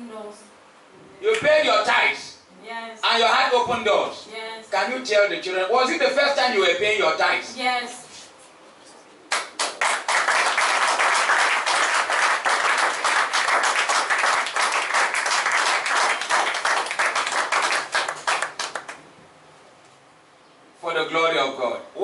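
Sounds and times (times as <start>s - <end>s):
congregation applauding: 9.3s - 19.0s.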